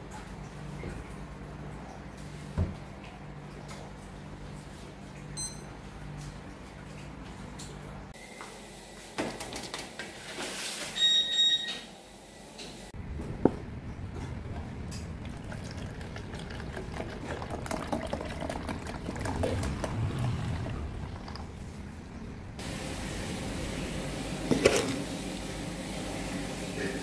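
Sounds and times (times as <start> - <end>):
milk pouring into plastic jug: 15.2 - 21.6.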